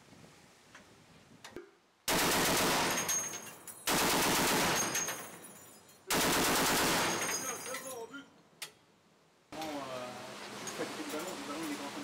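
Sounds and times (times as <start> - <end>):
automatic gunfire: 2.1 - 3.1, 3.9 - 5.0, 6.1 - 7.2.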